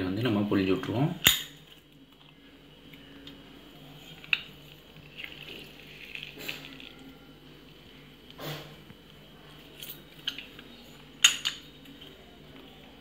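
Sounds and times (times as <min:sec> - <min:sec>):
lemon squeezing: 0:03.9 - 0:07.3.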